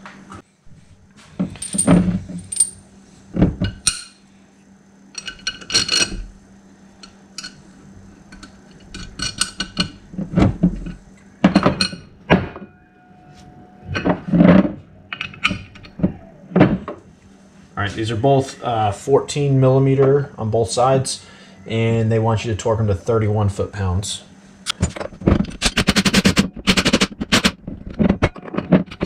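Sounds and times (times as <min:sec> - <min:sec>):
metal parts clinking on workbench: 0:01.5 - 0:02.8.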